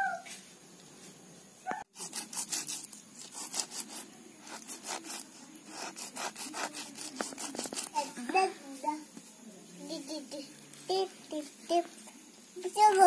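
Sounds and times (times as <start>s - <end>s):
fish scraped on stone: 1.9s - 8.0s.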